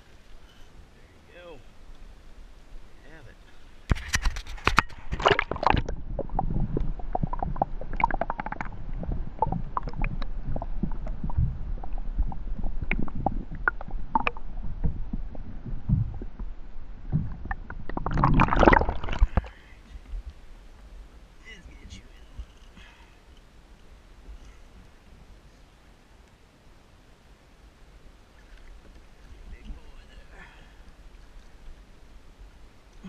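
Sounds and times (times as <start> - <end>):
muffled underwater rumble: 0.0 - 26.2
underwater clicks and ticks: 1.8 - 2.1, 3.8 - 20.9
water splashing rush: 3.8 - 16.1, 17.1 - 19.9.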